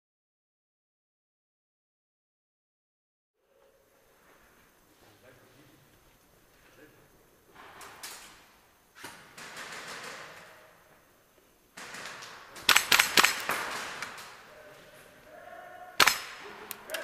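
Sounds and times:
airsoft gunfire cracks: 0:11.8 - 0:14.5, 0:16.0 - 0:17.0.

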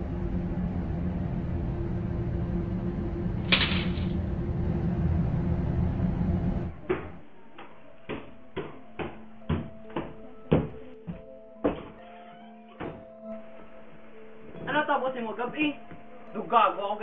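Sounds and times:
steady rumbling noise: 0:00.0 - 0:07.3
quiet background music: 0:00.0 - 0:17.0
footsteps climbing stairs: 0:06.8 - 0:12.1, 0:12.7 - 0:13.2.

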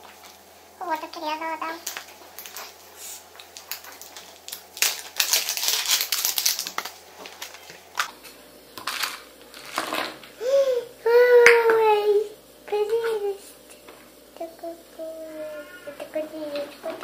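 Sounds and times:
plastic crinkling and crackling: 0:01.6 - 0:08.2.

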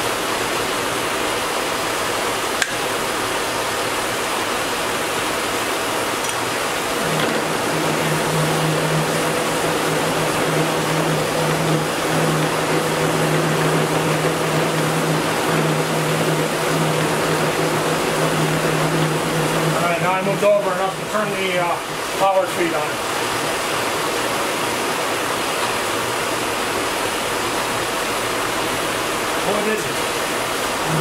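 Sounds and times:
steady low hum: 0:02.6 - 0:24.9
milling machine running: 0:03.3 - 0:31.0.

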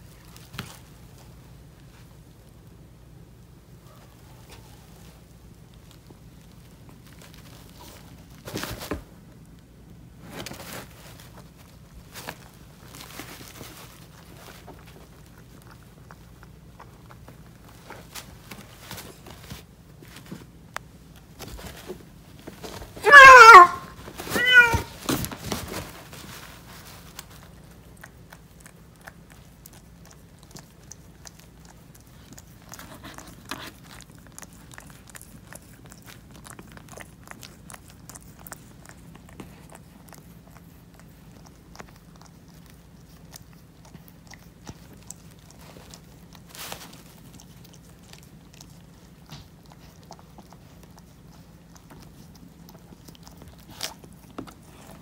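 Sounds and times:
faint rustling: 0:03.8 - 0:55.0
cat crying: 0:23.0 - 0:25.0.

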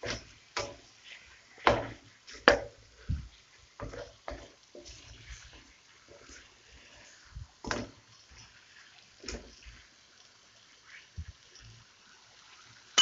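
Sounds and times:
spatula scraping and clacking in wok: 0:00.0 - 0:06.5.

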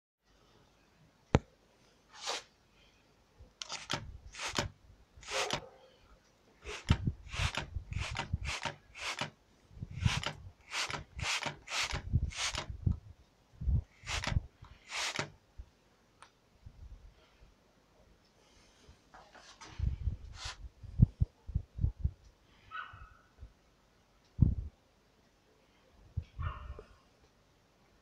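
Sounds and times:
spray bottle squirting hiss: 0:06.7 - 0:09.3, 0:14.9 - 0:15.3.

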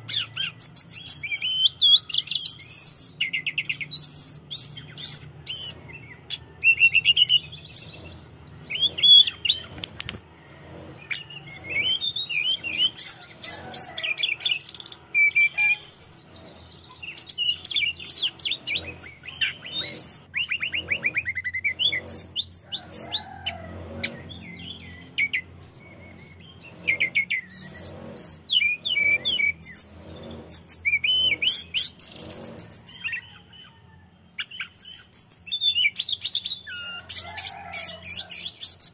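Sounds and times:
bird singing whistled phrases: 0:00.1 - 0:05.8, 0:14.2 - 0:16.3.

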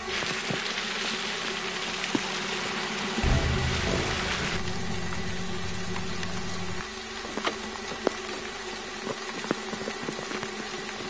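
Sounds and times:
steady rain falling: 0:00.0 - 0:11.0
low hum: 0:03.2 - 0:07.2.

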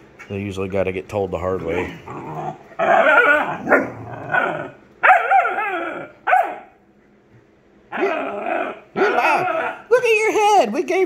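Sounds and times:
dogs yowling: 0:01.7 - 0:06.8, 0:07.9 - 0:09.9
dogs barking: 0:01.8 - 0:06.8, 0:07.9 - 0:09.9.

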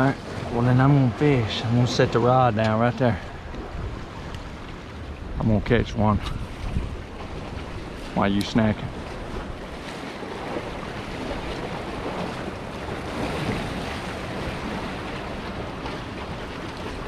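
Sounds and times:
waves splashing against rocks: 0:00.0 - 0:17.0.

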